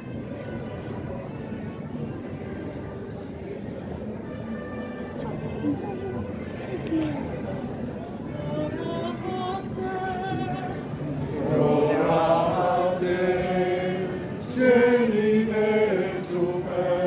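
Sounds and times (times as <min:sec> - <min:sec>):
group singing slow chant: 0:10.2 - 0:17.0.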